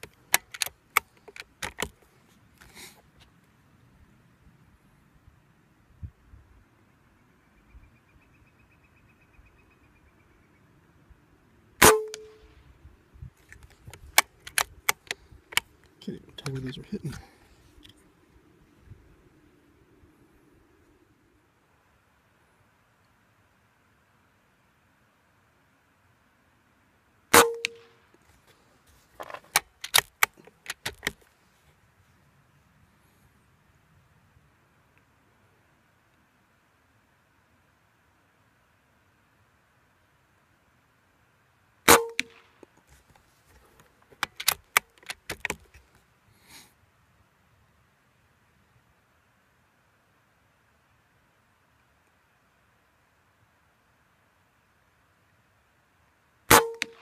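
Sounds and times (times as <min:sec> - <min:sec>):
rifle bolt clicks: 0:00.0 - 0:02.0, 0:13.5 - 0:15.7, 0:29.2 - 0:31.2, 0:44.2 - 0:45.8
air rifle shot: 0:11.8 - 0:12.4, 0:41.9 - 0:42.4, 0:56.5 - 0:57.0.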